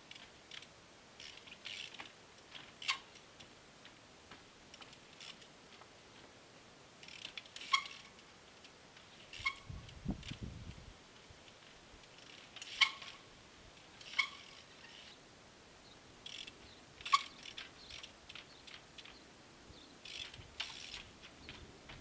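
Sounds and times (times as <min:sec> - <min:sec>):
light clicks and rattles: 0:00.0 - 0:06.4, 0:07.0 - 0:10.5, 0:16.2 - 0:19.2.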